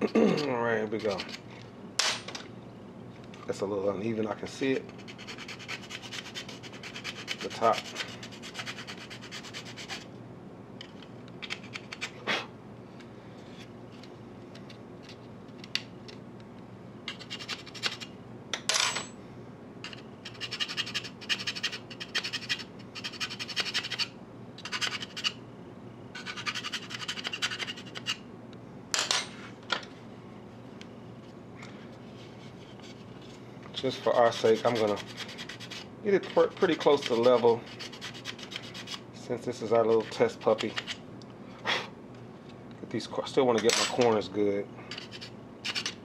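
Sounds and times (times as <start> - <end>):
hand file rasping on plastic: 5.0 - 10.0, 34.2 - 39.0.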